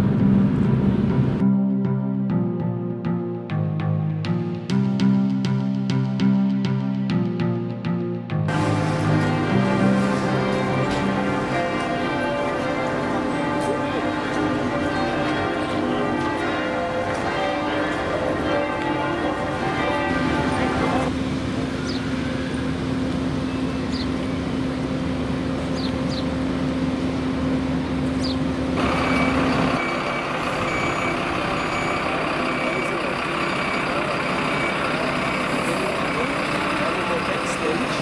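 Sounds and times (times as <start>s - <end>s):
bells ringing: 8.5s - 22.3s, 28.8s - 38.0s
diesel engine idling: 8.5s - 38.0s
reversing alarm beeping: 28.8s - 38.0s.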